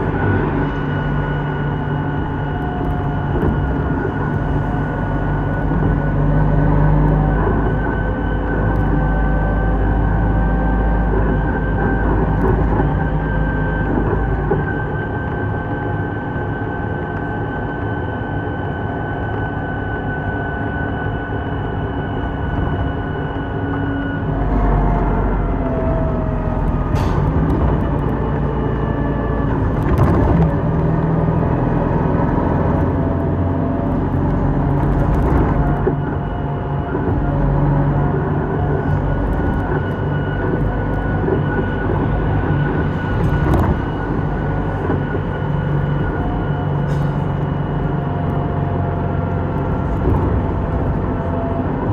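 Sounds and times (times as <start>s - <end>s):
bus engine and road noise: 0.0s - 51.9s
whining tone: 0.0s - 51.9s.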